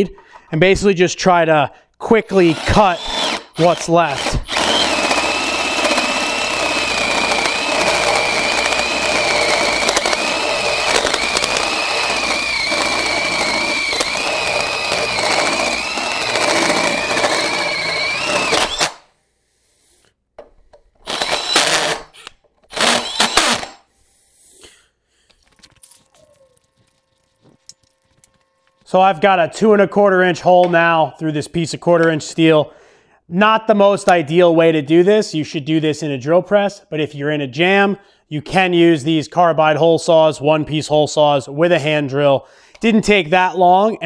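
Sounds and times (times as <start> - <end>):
drill hole saw cutting steel: 2.3 - 19.1, 21.0 - 23.8.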